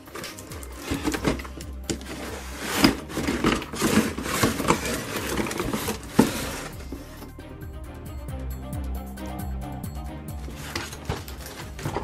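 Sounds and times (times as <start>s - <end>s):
cardboard scraping and rustling: 0.0s - 7.3s, 10.4s - 12.0s.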